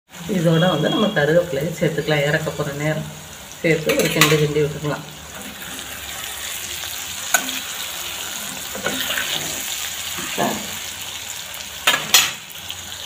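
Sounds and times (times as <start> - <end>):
food sizzling in hot oil: 0.1 - 13.0
spoon scraping a pan: 3.8 - 4.5, 5.3 - 10.9.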